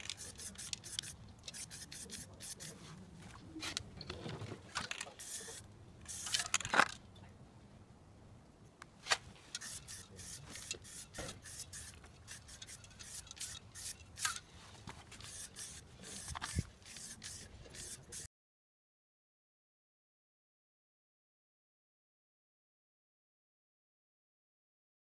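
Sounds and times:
spray can hissing bursts: 0:00.0 - 0:02.8, 0:05.2 - 0:06.5, 0:09.6 - 0:14.4, 0:15.2 - 0:18.3.

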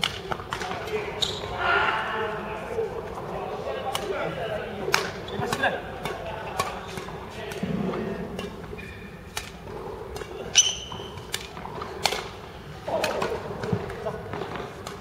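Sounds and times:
rackets striking shuttlecock: 0:00.0 - 0:01.1, 0:03.8 - 0:04.2, 0:04.8 - 0:15.0
faint voices: 0:00.4 - 0:08.7
shoe squeaking on floor: 0:01.1 - 0:01.6, 0:05.2 - 0:05.6, 0:08.7 - 0:09.2, 0:10.6 - 0:11.3.

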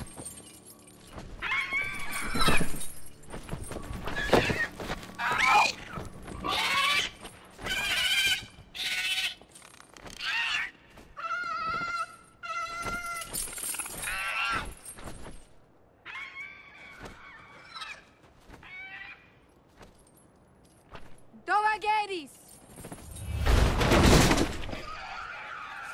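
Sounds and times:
creature screeching: 0:06.4 - 0:09.4, 0:10.2 - 0:13.0, 0:24.8 - 0:25.9.

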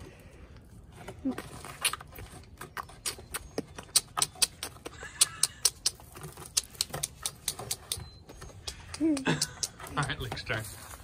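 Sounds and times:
girl beatboxing: 0:08.6 - 0:09.8.

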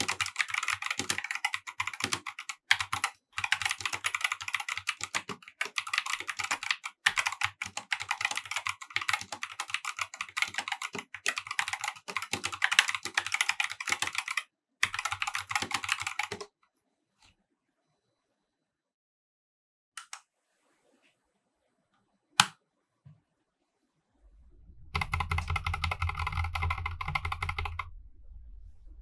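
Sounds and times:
fast typing on mechanical keyboard: 0:00.0 - 0:16.5, 0:25.0 - 0:27.9.

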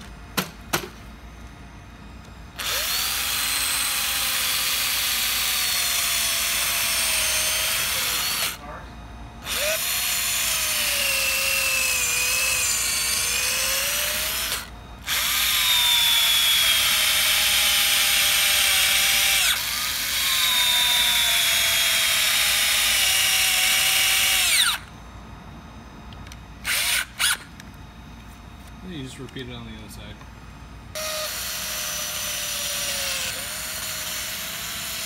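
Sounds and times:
electric drill whining: 0:02.5 - 0:08.6, 0:09.4 - 0:24.9, 0:26.2 - 0:27.6, 0:30.9 - 0:35.0.

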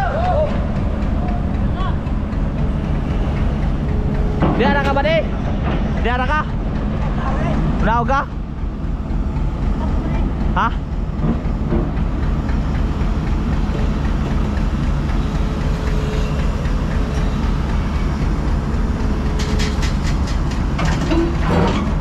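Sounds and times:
excavator diesel engine running: 0:00.0 - 0:22.0
sharp knocks: 0:02.4 - 0:07.0, 0:11.2 - 0:12.1.

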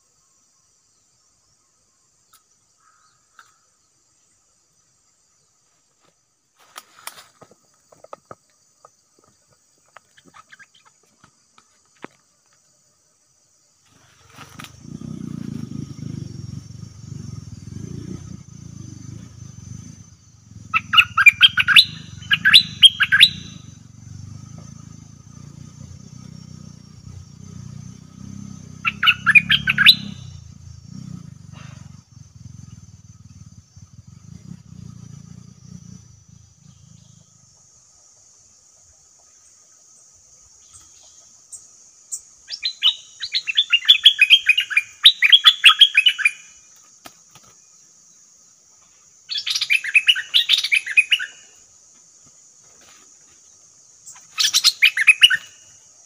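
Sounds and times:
high insect-like whine: 0:00.0 - 0:56.0
bird harsh chattering calls: 0:10.0 - 0:11.1, 0:13.9 - 0:23.8, 0:28.6 - 0:37.3, 0:42.1 - 0:46.5, 0:49.3 - 0:51.5, 0:54.0 - 0:55.7
steady low rumble: 0:14.8 - 0:20.8.

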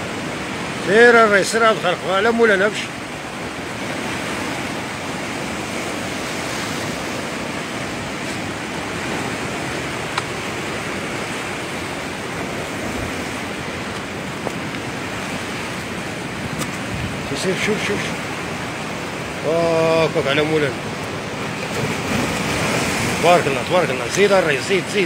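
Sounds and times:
surf breaking on rocky shore: 0:00.0 - 0:25.0
wind on microphone: 0:03.3 - 0:19.4.

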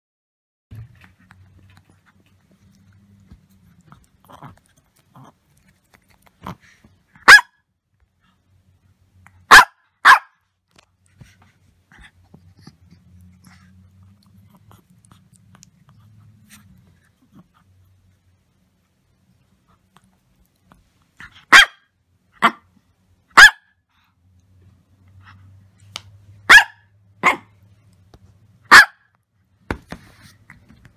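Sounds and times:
small dog barking: 0:07.2 - 0:07.6, 0:09.4 - 0:10.4, 0:21.2 - 0:22.7, 0:23.3 - 0:23.8, 0:26.4 - 0:27.6, 0:28.6 - 0:29.1.

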